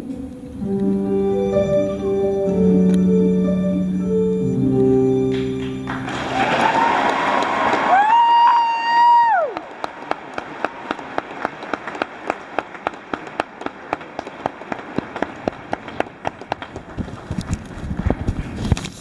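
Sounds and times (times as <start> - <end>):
audience applauding: 5.3 - 17.6.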